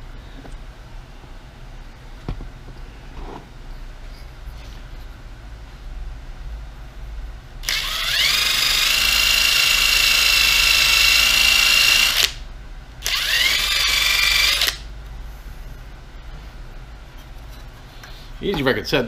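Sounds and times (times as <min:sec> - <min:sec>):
cordless drill whining: 0:07.6 - 0:12.4, 0:13.0 - 0:14.8.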